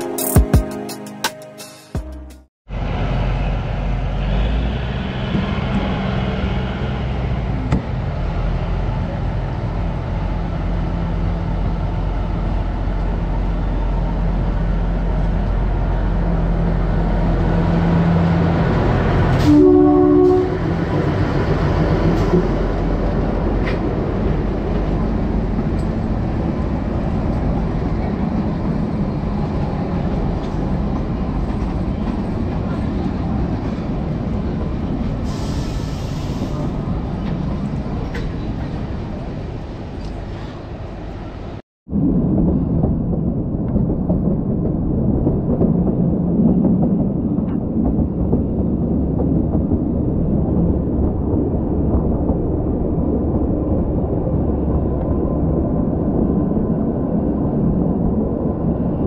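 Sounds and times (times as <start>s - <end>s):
train horn: 19.3s - 20.8s.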